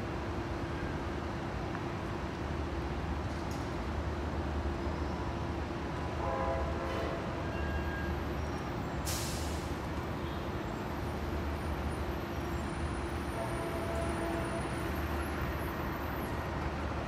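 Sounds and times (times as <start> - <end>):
short hiss: 9.1 - 9.7.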